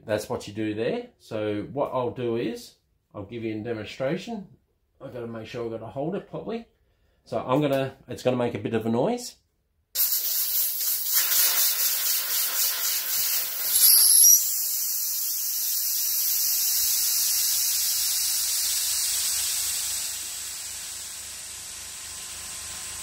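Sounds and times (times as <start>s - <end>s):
compressed air hissing: 10.0s - 23.0s.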